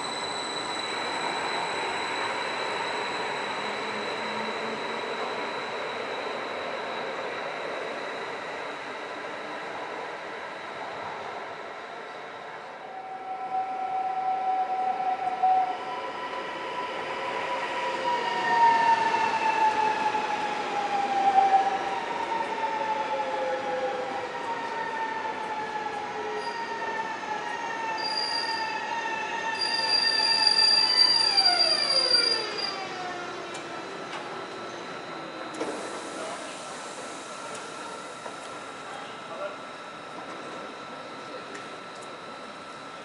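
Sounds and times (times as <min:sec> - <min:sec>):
high steady squeal: 0:00.0 - 0:09.8, 0:27.8 - 0:38.2
train braking whine: 0:00.0 - 0:43.0.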